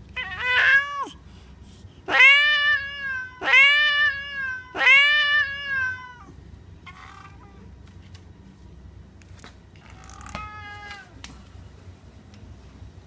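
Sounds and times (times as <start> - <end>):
cat meowing: 0.2 - 1.2, 2.1 - 7.7, 9.8 - 11.2.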